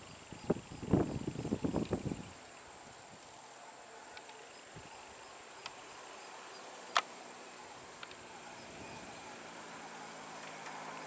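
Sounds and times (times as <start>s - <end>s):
high-pitched insect drone: 3.8s - 11.0s.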